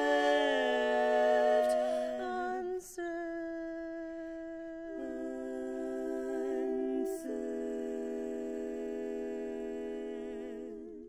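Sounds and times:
women singing a cappella harmony: 0:00.0 - 0:11.0.

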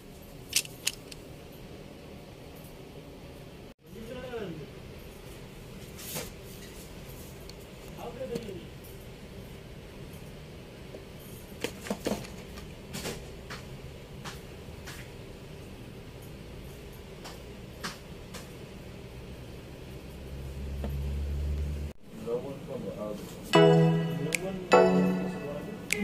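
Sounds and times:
low room hum: 0:00.0 - 0:26.0.

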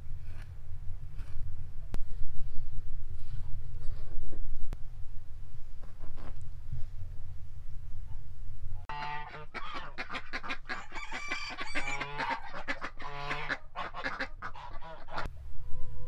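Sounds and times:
geese honking: 0:08.9 - 0:16.0.

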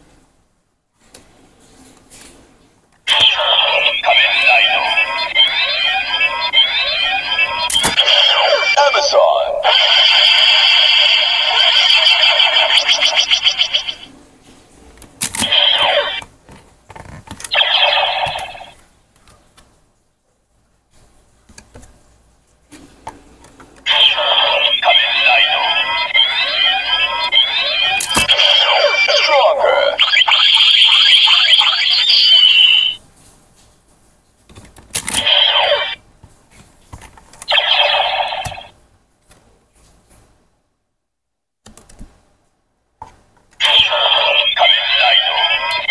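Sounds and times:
electronic sound effects: 0:03.1 - 0:14.1, 0:15.4 - 0:16.2, 0:17.5 - 0:18.8, 0:23.9 - 0:33.0, 0:35.2 - 0:36.0, 0:37.5 - 0:38.7, 0:43.6 - 0:45.9.

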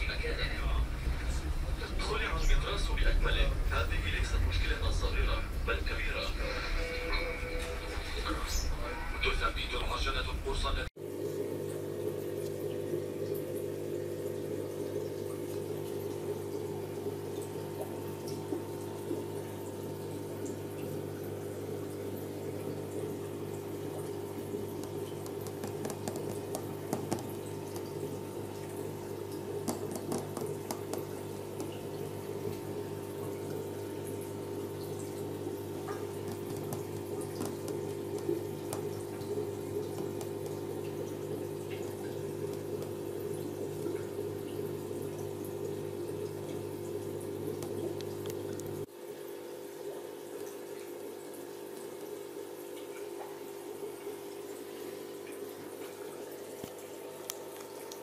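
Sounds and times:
steady low hum: 0:00.0 - 0:11.4
aquarium aeration bubbling: 0:00.0 - 0:58.0
water splashing in a tank: 0:00.0 - 0:58.0.

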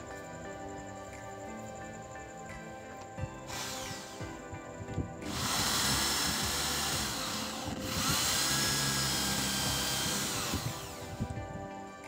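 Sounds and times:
electric drill boring wood: 0:03.4 - 0:04.4, 0:05.2 - 0:11.5.

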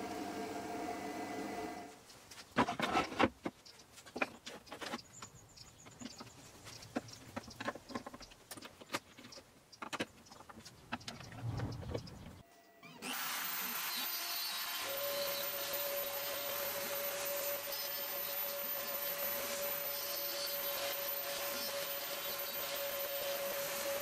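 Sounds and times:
knocks and clicks of wood and tools: 0:02.1 - 0:12.4.

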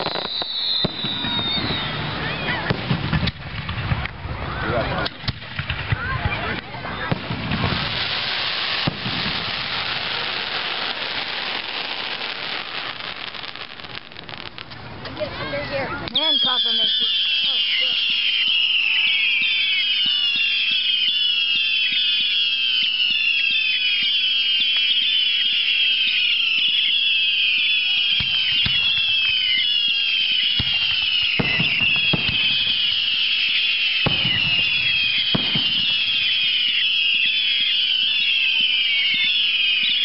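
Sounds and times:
firework bangs: 0:00.0 - 0:40.0
whistling fireworks: 0:00.0 - 0:40.0.

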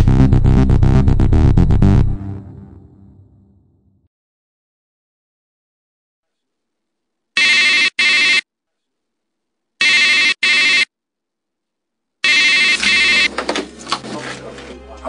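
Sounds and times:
telephone ringing: 0:07.4 - 0:08.4, 0:09.8 - 0:10.9, 0:12.2 - 0:13.3.

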